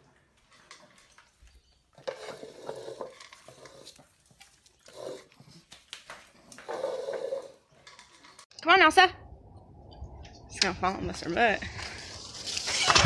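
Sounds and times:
pet bowl scraping on tile: 0.5 - 8.5.

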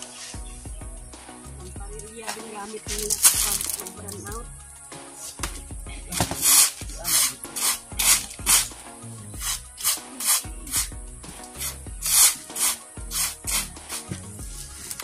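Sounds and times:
sand rasping strokes: 0.0 - 0.4, 6.2 - 8.7, 9.4 - 15.0
background music with low notes: 0.0 - 15.0.

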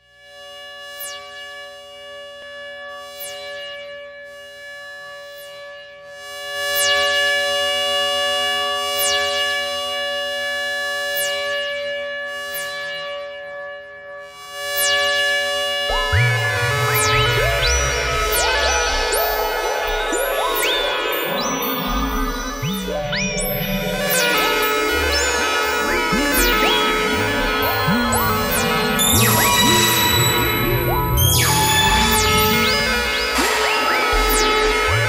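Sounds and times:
high falling synth sweep: 15.8 - 35.0
deep bass: 15.9 - 35.0
stepped rising tones: 15.9 - 35.0
synthesizer drone chord: 15.9 - 35.0.

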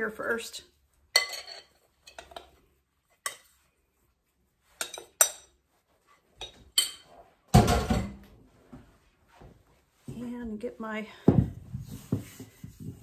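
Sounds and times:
metal spoon clinking on glass bowl: 1.1 - 2.4.

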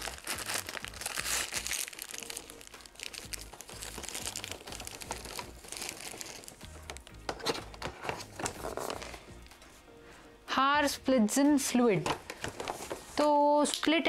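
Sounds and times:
cardboard rustling: 0.0 - 9.2
plastic wrapping crinkling: 0.0 - 9.2.

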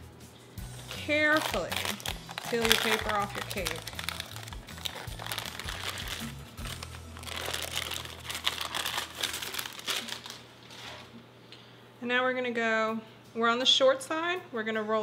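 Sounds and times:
paper lining crinkling: 0.9 - 11.2.

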